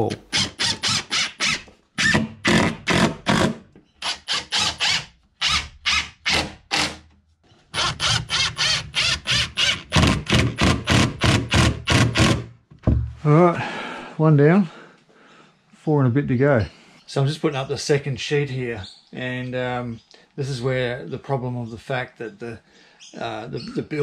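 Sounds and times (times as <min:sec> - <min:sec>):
impact driver driving screws: 0:00.1 - 0:07.1, 0:07.7 - 0:12.5.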